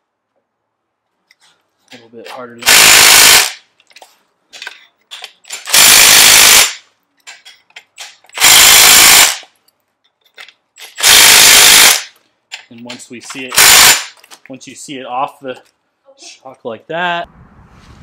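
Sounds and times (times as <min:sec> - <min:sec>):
impact driver running: 0:02.6 - 0:03.6, 0:05.6 - 0:06.8, 0:08.4 - 0:09.4, 0:10.9 - 0:12.1, 0:13.4 - 0:14.2.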